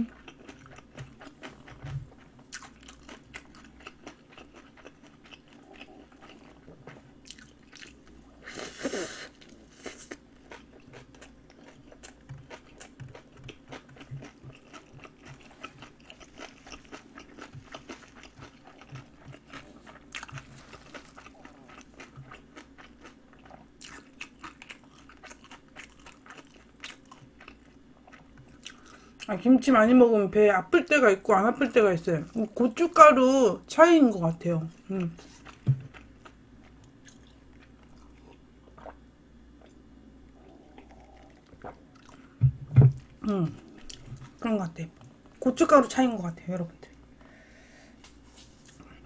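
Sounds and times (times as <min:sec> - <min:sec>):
person chewing crunchy food: 0:00.0 - 0:29.3, 0:34.8 - 0:44.4.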